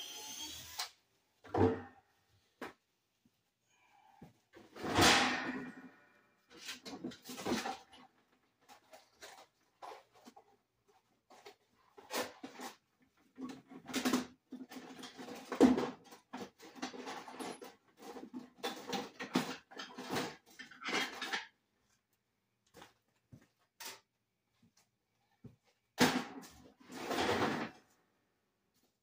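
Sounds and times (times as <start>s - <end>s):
objects knocking and clattering: 4.5s - 21.6s.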